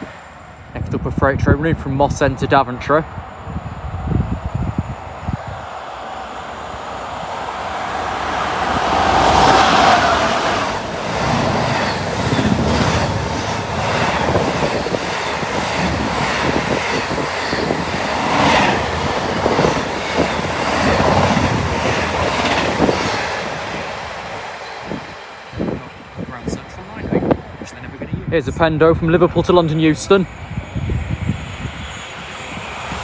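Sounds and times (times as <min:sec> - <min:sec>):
freight train passing: 0:00.0 - 0:33.0
train wheels rumbling and clicking: 0:07.3 - 0:33.0.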